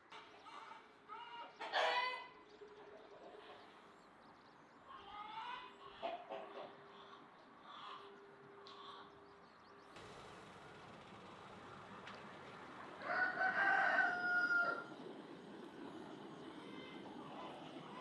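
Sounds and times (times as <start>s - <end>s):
small birds chirping: 14.8s - 18.0s.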